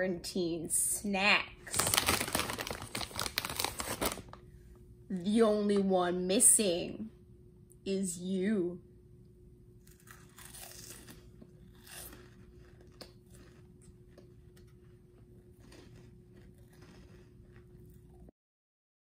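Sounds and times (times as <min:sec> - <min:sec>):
faint steady hum: 0:00.0 - 0:18.3
crunching and chewing snack: 0:01.7 - 0:04.3, 0:09.8 - 0:18.3.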